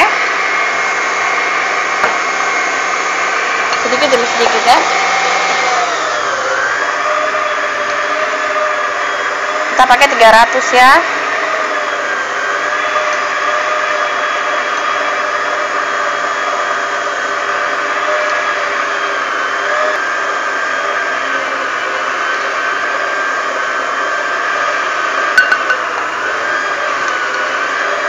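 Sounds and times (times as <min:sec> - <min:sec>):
stand mixer motor whining: 0:00.0 - 0:28.0.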